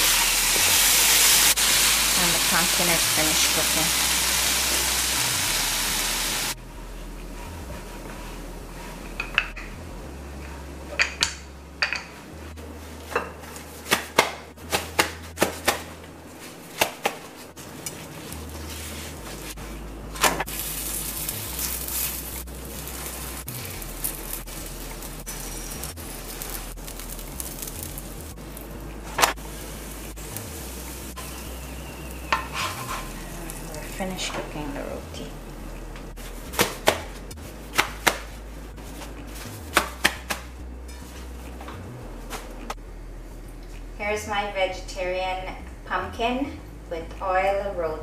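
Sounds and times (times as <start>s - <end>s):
dough sizzling on hot pan: 0.0s - 6.6s, 16.7s - 19.6s, 20.2s - 34.2s.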